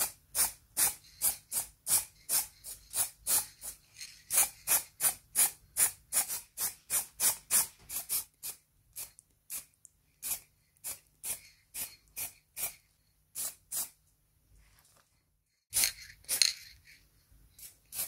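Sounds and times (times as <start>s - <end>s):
spray paint can puffs: 0.0s - 12.8s.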